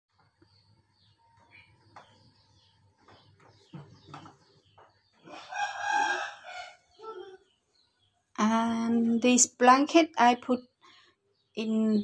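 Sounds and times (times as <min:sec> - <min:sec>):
rooster crowing: 0:05.3 - 0:07.0.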